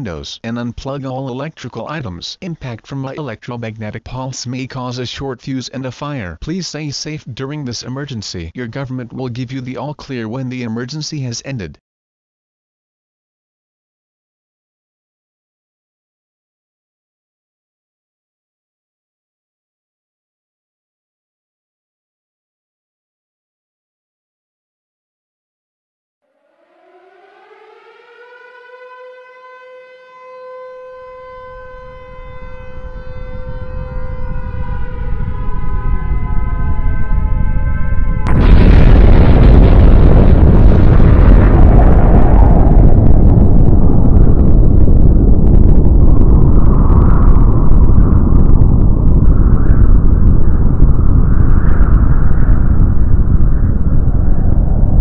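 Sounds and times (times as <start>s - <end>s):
civil defense siren wailing: 26.2s - 39.3s
deep rumble: 31.3s - 55.0s.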